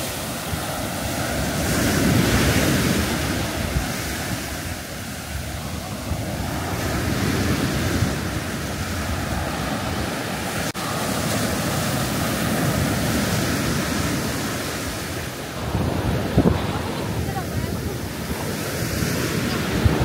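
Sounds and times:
surf breaking on beach: 0.0s - 20.0s
wind buffeting microphone: 0.0s - 20.0s.

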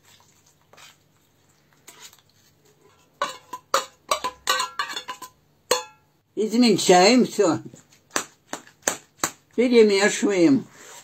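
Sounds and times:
metal scraping tin can: 1.9s - 5.9s.

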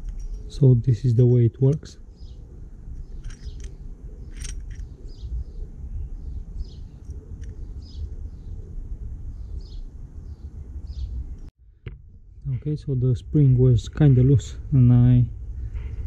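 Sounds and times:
low outdoor rumble: 0.0s - 16.0s
small bird chirping: 2.0s - 8.7s, 9.3s - 11.2s.

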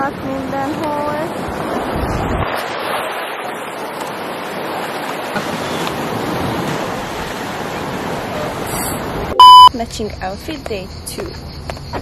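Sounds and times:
sea waves breaking on rocks: 0.7s - 9.3s.

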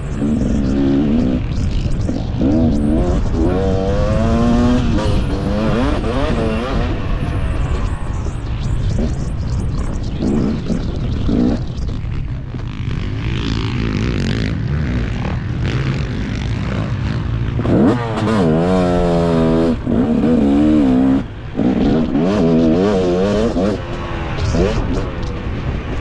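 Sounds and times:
motocross engine revving: 0.0s - 7.8s, 13.0s - 26.0s
wind noise: 0.0s - 26.0s.

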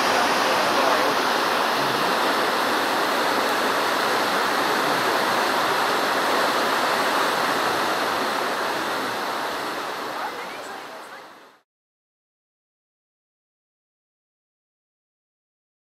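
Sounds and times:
rushing churned water: 0.0s - 11.6s.

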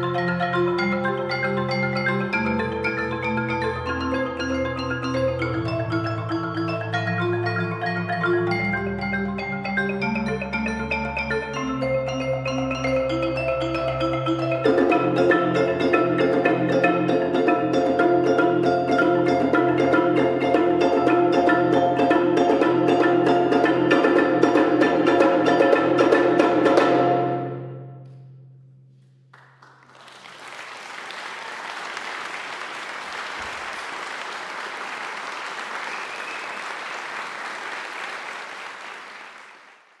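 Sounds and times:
marimbas playing: 0.0s - 28.0s
audience applause: 29.3s - 40.0s.

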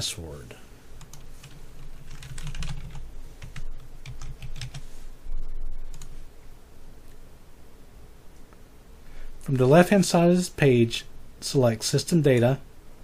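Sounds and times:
typing on a computer keyboard: 1.0s - 4.8s.

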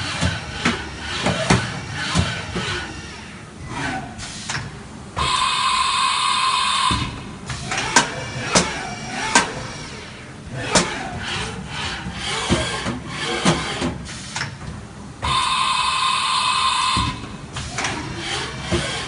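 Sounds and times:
machine clicks and clunks: 0.0s - 3.0s, 6.9s - 9.8s, 10.5s - 15.4s, 17.0s - 19.0s
machine axis drives whining: 0.0s - 14.6s, 15.2s - 19.0s.

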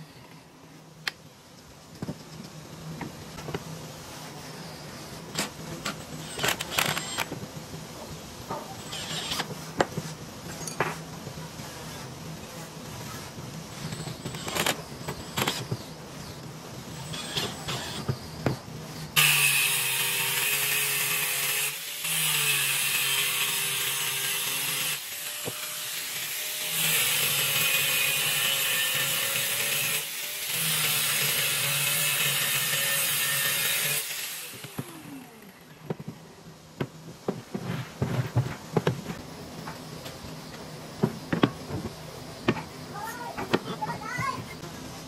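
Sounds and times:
angle grinder grinding steel: 8.8s - 9.5s, 19.2s - 35.1s.

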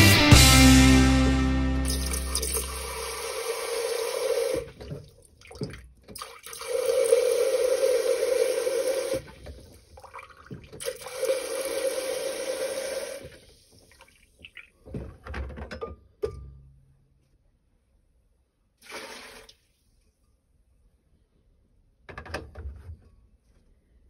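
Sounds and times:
beer pump rushing flow: 1.9s - 4.8s, 6.2s - 9.3s, 10.8s - 13.4s.

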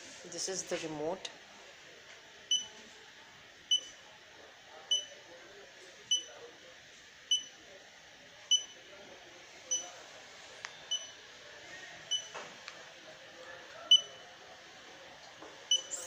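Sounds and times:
short high beeps: 15.7s - 16.0s.

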